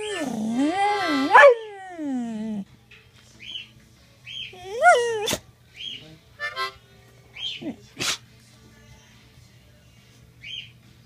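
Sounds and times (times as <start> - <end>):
dog howling: 0.0 - 2.6, 4.6 - 5.4.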